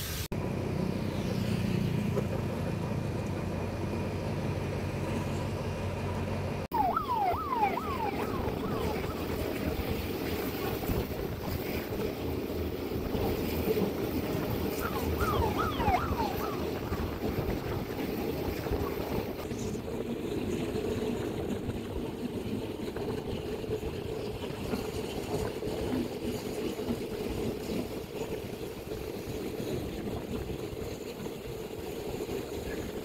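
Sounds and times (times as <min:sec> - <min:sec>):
vehicles rumbling: 0:00.3 - 0:21.8.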